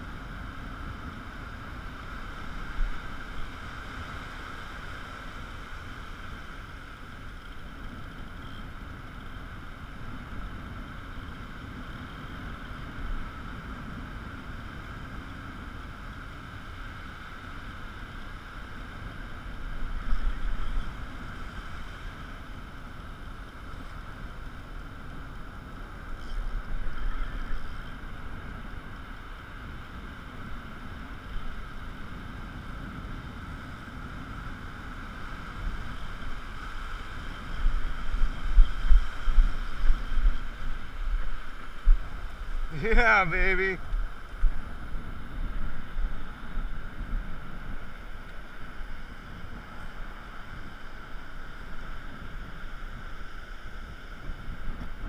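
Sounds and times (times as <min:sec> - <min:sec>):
wind buffeting microphone: 0:18.3 - 0:55.0.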